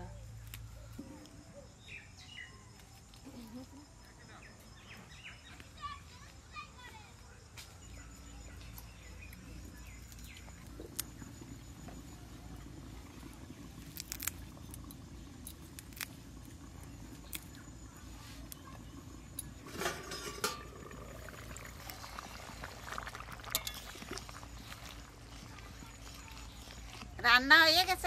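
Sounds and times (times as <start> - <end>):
clay bowls and utensils clinking: 19.6 - 21.5, 23.3 - 26.3.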